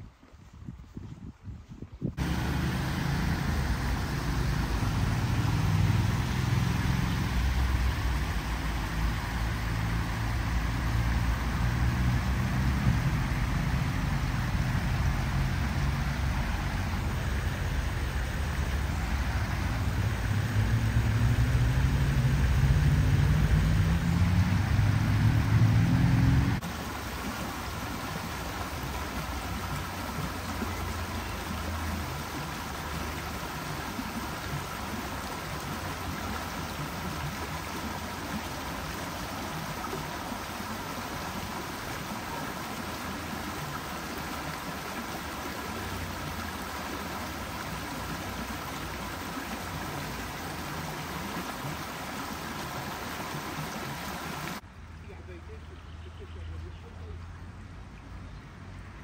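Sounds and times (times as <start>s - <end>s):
engine rising in pitch: 2.2s - 26.6s
water rushing over rocks: 2.2s - 54.7s.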